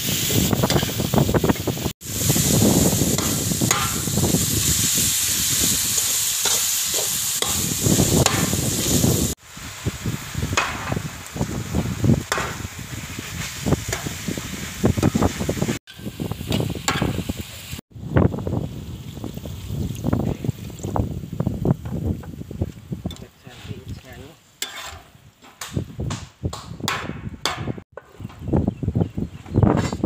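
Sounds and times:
beef sizzling in a wok: 0.0s - 23.0s, 24.6s - 25.3s
metal spatula scraping a pan: 5.9s - 8.5s, 23.1s - 23.9s, 24.6s - 25.6s.

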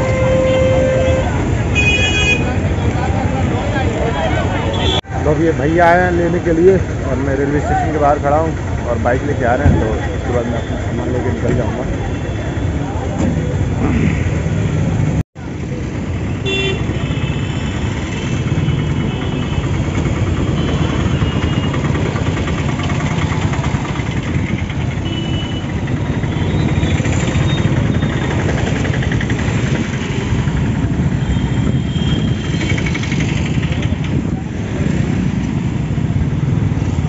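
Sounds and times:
vehicle horn toots: 0.0s - 2.6s, 16.4s - 19.7s
road rumble: 0.0s - 37.0s
motorcycle engine running: 17.8s - 37.0s.

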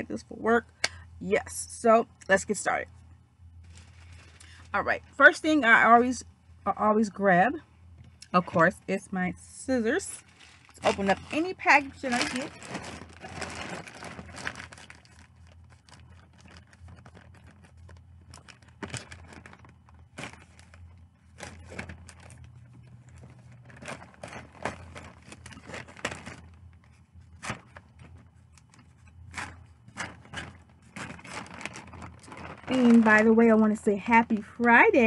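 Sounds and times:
plastic bag crinkling: 3.6s - 5.0s, 9.8s - 35.0s.

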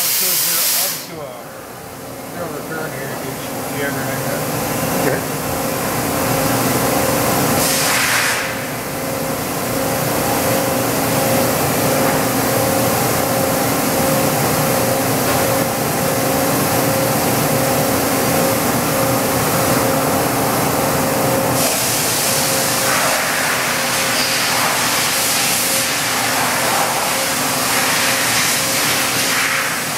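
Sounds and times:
machine hiss: 0.0s - 1.2s, 7.5s - 8.7s, 21.6s - 29.9s.

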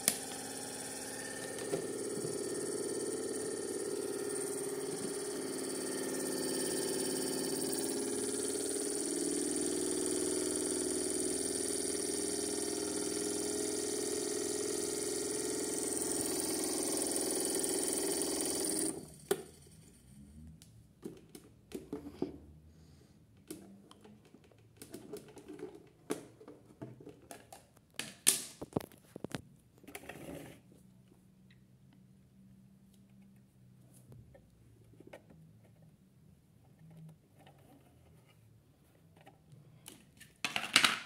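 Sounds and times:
small electric motor humming: 0.0s - 19.6s.

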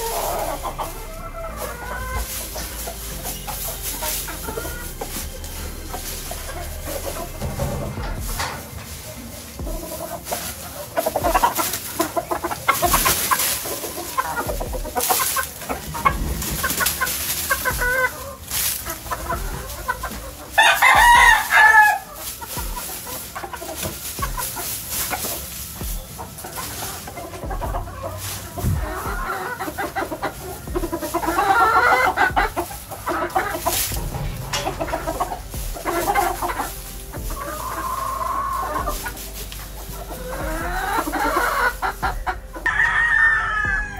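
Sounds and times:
hens clucking: 0.0s - 43.9s
rooster crowing: 20.6s - 22.1s, 42.7s - 43.9s.

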